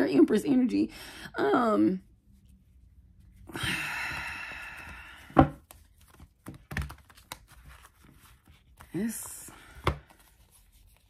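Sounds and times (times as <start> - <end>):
cards clicking and tapping: 4.8 - 9.0
cards riffle-shuffled: 4.8 - 11.0.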